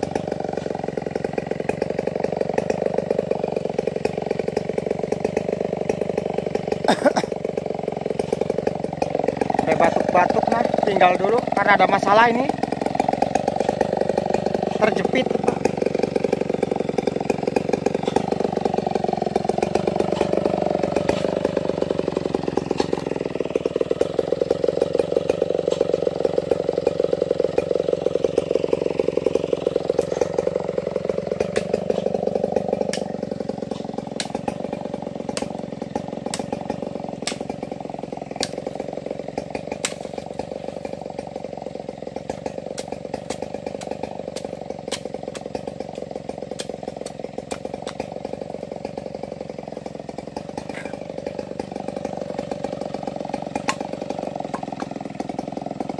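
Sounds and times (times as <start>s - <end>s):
chainsaw idling: 0.0s - 55.9s
blade hacking wood: 12.0s - 55.9s.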